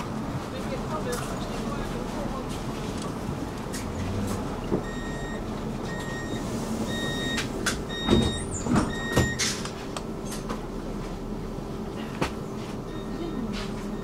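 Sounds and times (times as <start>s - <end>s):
tram carriage rumble: 0.0s - 14.0s
sliding doors clunking shut: 3.4s - 10.7s
tram door warning beeps: 4.6s - 9.7s, 12.8s - 14.0s.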